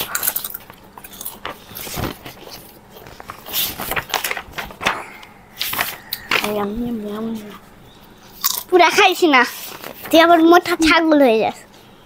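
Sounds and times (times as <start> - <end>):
potato chips crunching: 0.0 - 2.6, 8.4 - 8.7
book pages turning: 1.4 - 7.6, 9.5 - 10.4.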